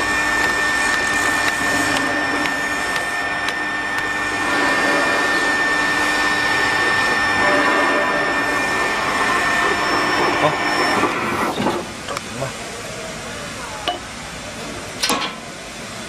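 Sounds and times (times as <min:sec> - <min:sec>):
electric winch motor running: 0:00.0 - 0:11.5.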